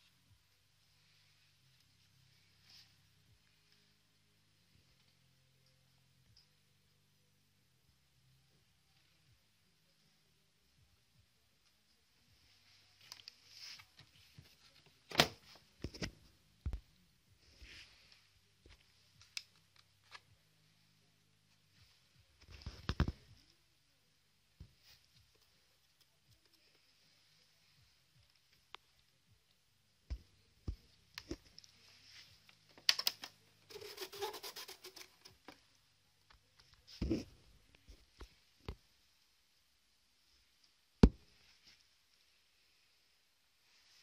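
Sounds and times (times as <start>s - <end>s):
scratching and rubbing: 33.1s - 35.7s.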